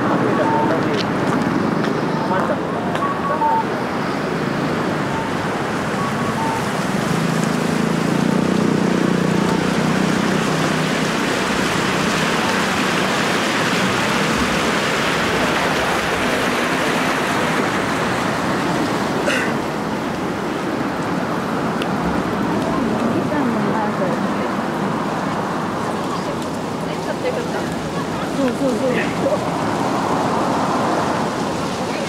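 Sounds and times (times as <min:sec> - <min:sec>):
passing vehicle engine drone: 0:00.0 - 0:19.2
traffic noise: 0:00.0 - 0:32.0.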